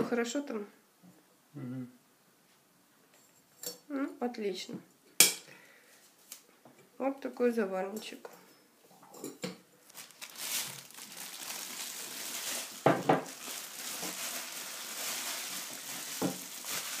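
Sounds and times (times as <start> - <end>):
plastic bag crinkling: 9.8 - 17.0.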